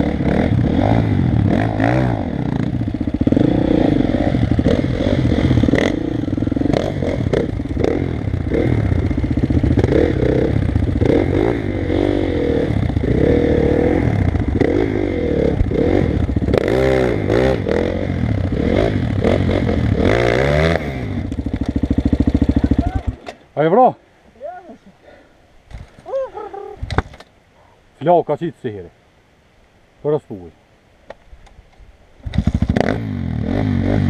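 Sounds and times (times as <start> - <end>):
motorcycle engine revving: 0.0 - 23.4, 32.2 - 34.0
motorcycle knocking and rattling: 21.3 - 23.4.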